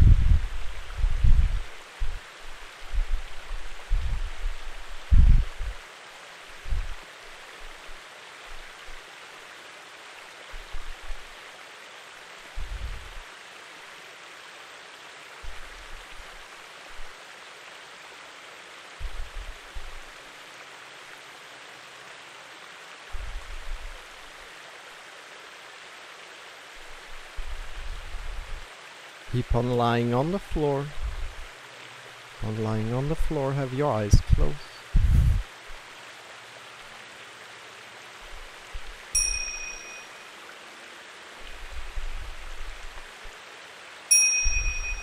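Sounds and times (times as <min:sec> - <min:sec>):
stream flowing: 0:00.0 - 0:45.0
soft low bumps: 0:34.2 - 0:35.5.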